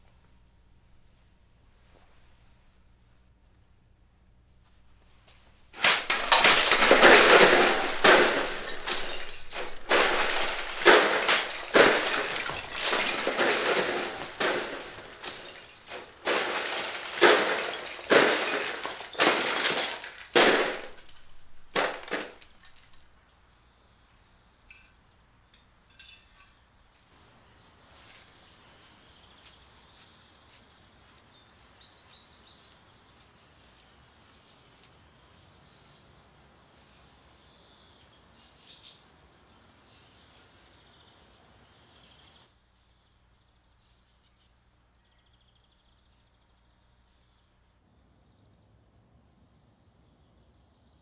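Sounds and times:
plastic bricks crashing and clattering: 5.8 - 23.1.

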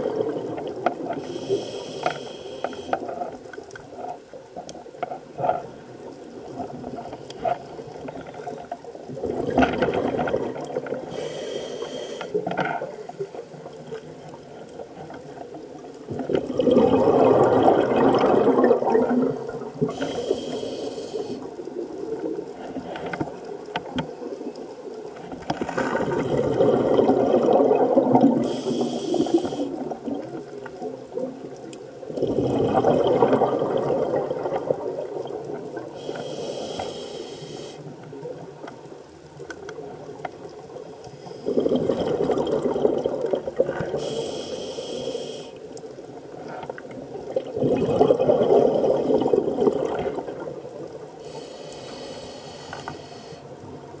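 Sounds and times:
bubbling exhale underwater: 0.0 - 1.8, 9.1 - 11.4, 16.0 - 21.6, 25.6 - 30.4, 32.1 - 36.1, 41.3 - 44.2, 47.1 - 51.4
regulator inhale hiss: 1.1 - 3.4, 11.1 - 13.3, 19.4 - 21.6, 28.4 - 29.9, 35.7 - 37.9, 40.9 - 41.7, 43.9 - 45.8, 51.0 - 53.6.

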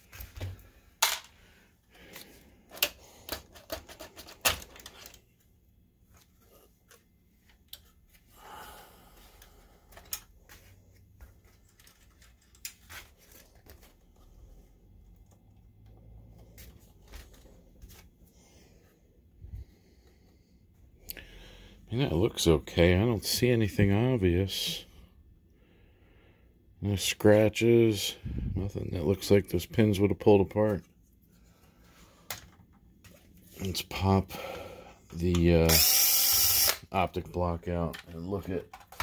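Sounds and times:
plastic clicks and clatter: 2.7 - 5.2, 37.9 - 39.0.

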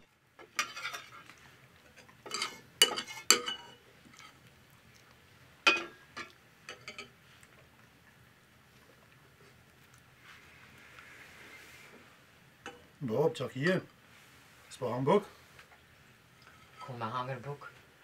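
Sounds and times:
spoons clinking on ceramic bowls: 2.3 - 3.8.

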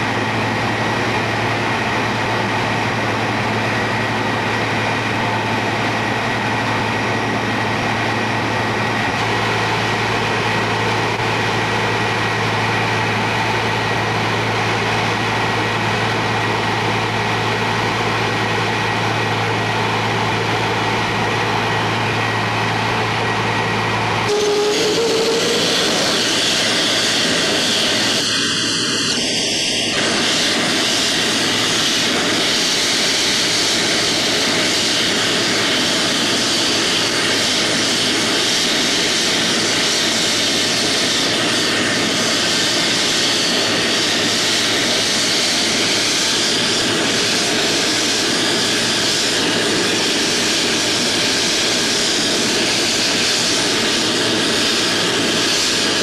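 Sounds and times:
jet turbine running: 0.0 - 56.0.

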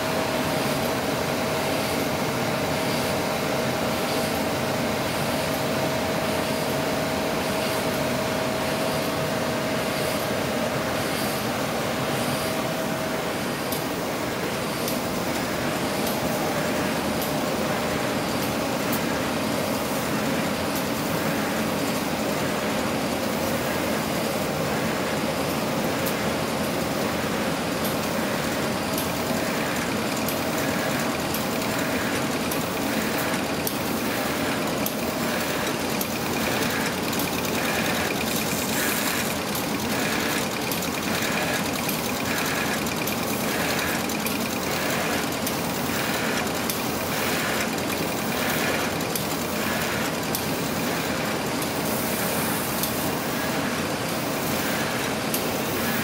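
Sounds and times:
machine hum and rattle: 0.0 - 56.0
faint regular machine beat: 26.5 - 52.3.

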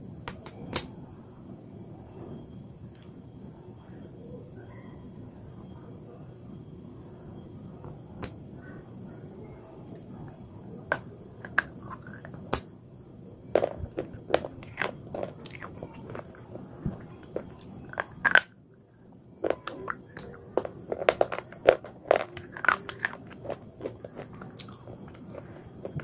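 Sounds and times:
crunching chewing: 10.9 - 12.6, 13.6 - 18.6, 19.4 - 26.0.

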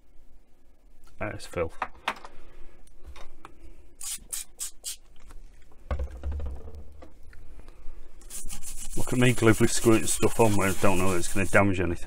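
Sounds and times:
spray bottle squirts: 4.0 - 5.0
low thump of radio case: 5.9 - 7.1.

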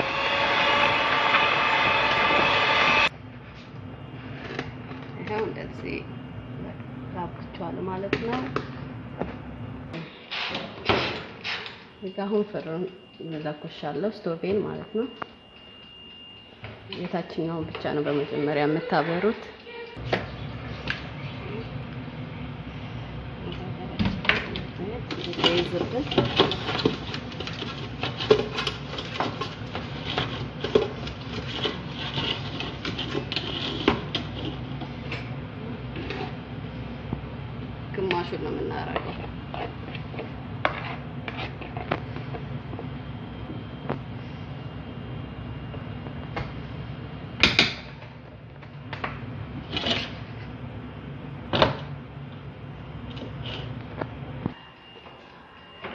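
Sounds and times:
steady low hum: 19.6 - 55.8.

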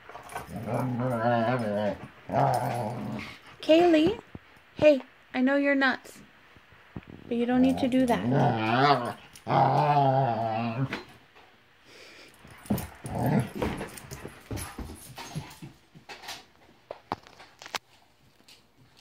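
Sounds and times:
dog growling grumble: 0.4 - 3.5, 7.6 - 11.1, 12.6 - 13.8.

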